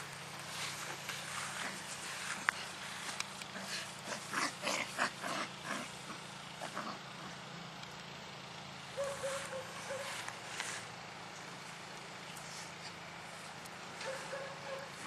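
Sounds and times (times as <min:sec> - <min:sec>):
dogs snuffling and scuffling: 0:00.4 - 0:06.1, 0:09.0 - 0:10.9, 0:12.3 - 0:15.0.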